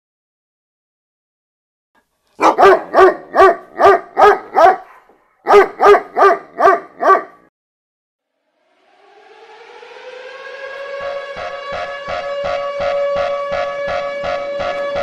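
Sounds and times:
dog barking: 0:02.4 - 0:07.5.

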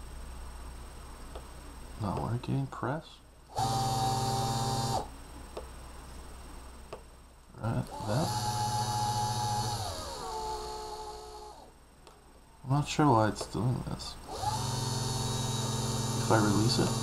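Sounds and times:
electric motor whining: 0:03.5 - 0:05.1, 0:07.7 - 0:11.7, 0:14.3 - 0:17.0.

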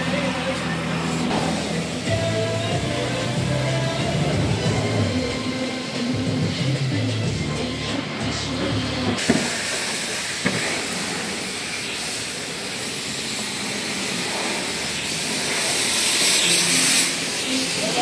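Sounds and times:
music: 0:00.0 - 0:09.2
steady hiss: 0:00.0 - 0:18.0.

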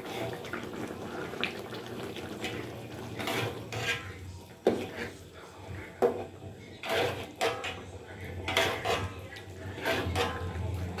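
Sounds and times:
metal ladle scraping a wok: 0:02.4 - 0:05.2, 0:06.7 - 0:11.0.

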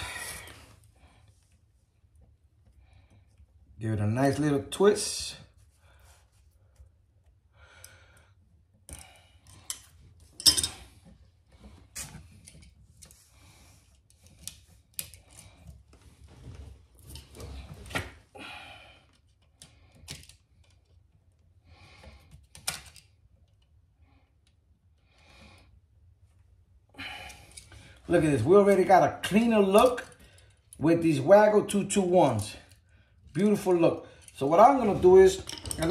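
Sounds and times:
clicks and taps handling wiring: 0:08.7 - 0:13.2, 0:14.0 - 0:18.2, 0:19.1 - 0:23.8, 0:34.1 - 0:35.9.

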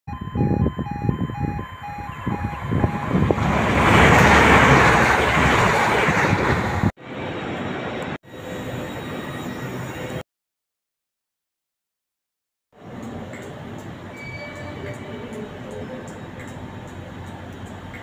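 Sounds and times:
level crossing alarm beeping: 0:00.1 - 0:03.4
train clattering past: 0:02.6 - 0:08.1.

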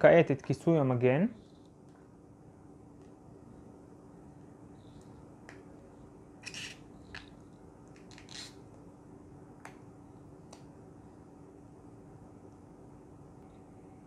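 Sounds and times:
faint steady hum: 0:00.0 - 0:14.0.

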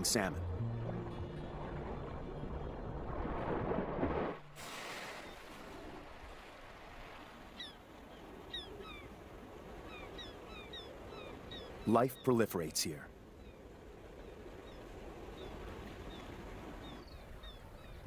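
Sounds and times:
background music: 0:00.0 - 0:02.9
sea surf: 0:00.0 - 0:18.0
birds chirping: 0:07.4 - 0:18.0.

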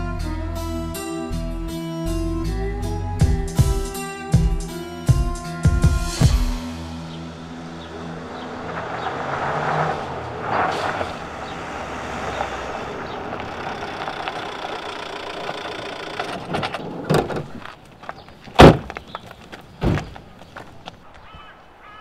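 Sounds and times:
van engine running: 0:00.0 - 0:17.1
tyres rolling on gravel: 0:07.4 - 0:21.6
van doors banging open: 0:14.4 - 0:17.6, 0:18.6 - 0:19.0, 0:19.8 - 0:20.2.

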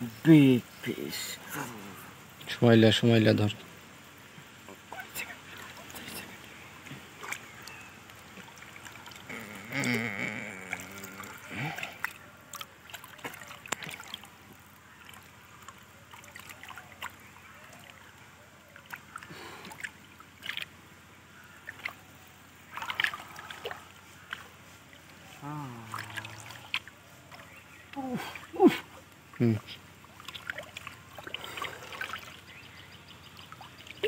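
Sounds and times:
water splashing and sloshing: 0:00.0 - 0:34.0
person calling out: 0:01.4 - 0:02.1, 0:09.3 - 0:11.8, 0:25.4 - 0:26.6, 0:28.0 - 0:28.9.

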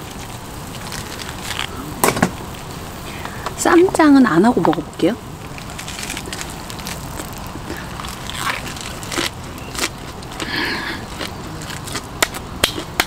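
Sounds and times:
chewing and crunching lettuce: 0:00.0 - 0:02.0, 0:05.4 - 0:13.0
steady hiss: 0:00.0 - 0:13.0.

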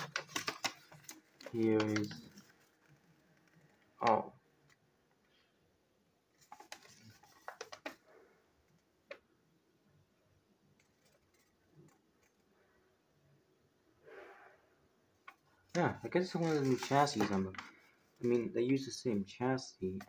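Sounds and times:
paper packaging clicks and rustles: 0:00.0 - 0:03.9, 0:06.4 - 0:08.1, 0:16.1 - 0:18.4.

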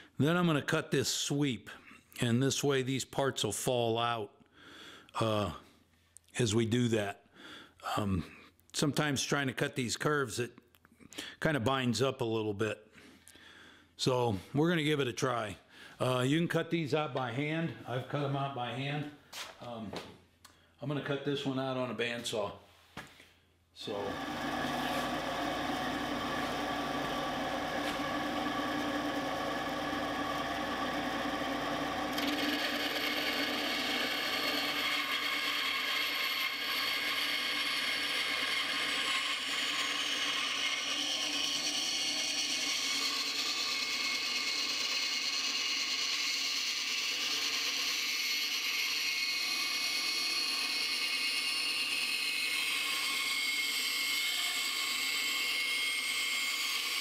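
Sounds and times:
bandsaw motor humming: 0:23.9 - 0:57.0
saw blade cutting wood: 0:23.9 - 0:57.0.

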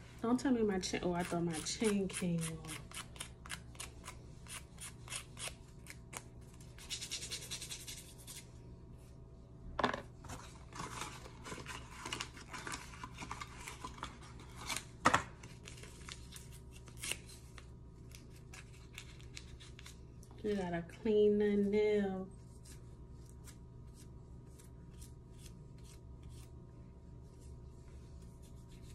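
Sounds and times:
nail file scraping fingernail: 0:06.8 - 0:08.4.

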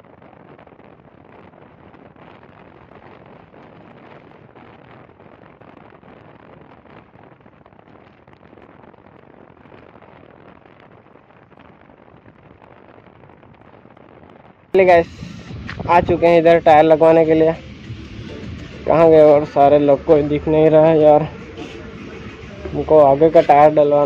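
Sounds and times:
wind rushing over microphone: 0:00.0 - 0:24.0
motorcycle road noise: 0:14.8 - 0:24.0.

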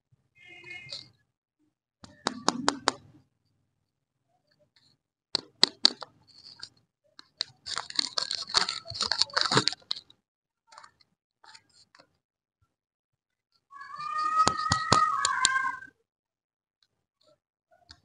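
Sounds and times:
wrapper crinkling and tearing: 0:07.7 - 0:10.0.

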